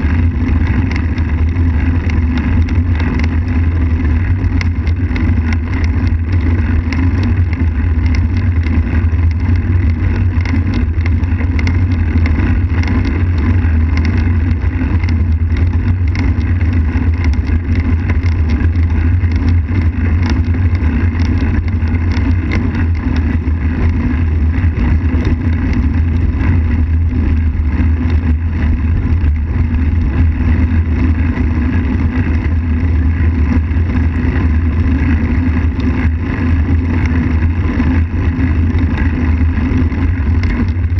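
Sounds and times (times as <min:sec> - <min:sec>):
bicycle rolling on asphalt: 0:00.0 - 0:40.9
wind rumble on microphone: 0:00.0 - 0:40.9.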